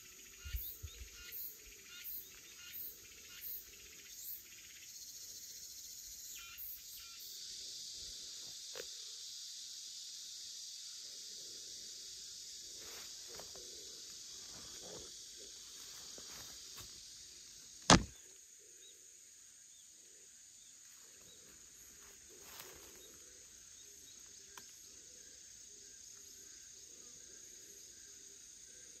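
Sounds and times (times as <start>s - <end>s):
cicadas buzzing: 0.0s - 29.0s
sharp knock: 17.9s - 18.1s.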